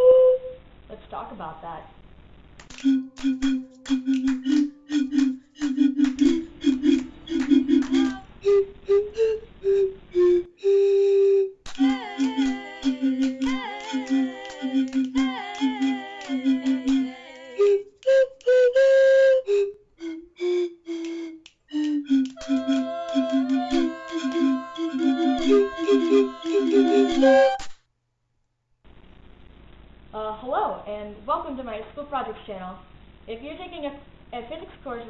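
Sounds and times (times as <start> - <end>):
clicking beat: 2.6 - 10.3, 11.7 - 18.9, 19.5 - 27.7
whistle-like theme music: 2.7 - 27.7.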